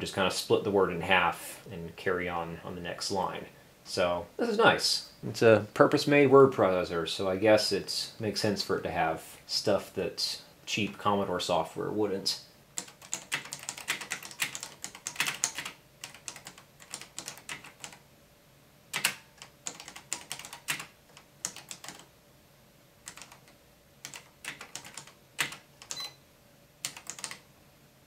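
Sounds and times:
typewriter keys clicking: 12.8s - 18.0s, 19.0s - 22.1s, 24.1s - 26.0s, 26.9s - 27.4s.

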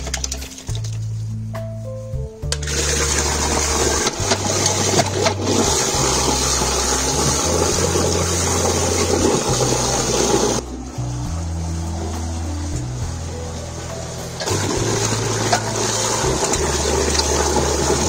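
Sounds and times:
milk pouring: 2.6s - 10.7s, 14.4s - 18.0s.

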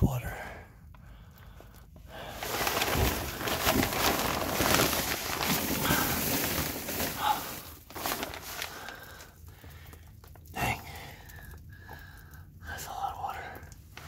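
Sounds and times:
plastic sheeting crinkling: 2.1s - 10.4s.

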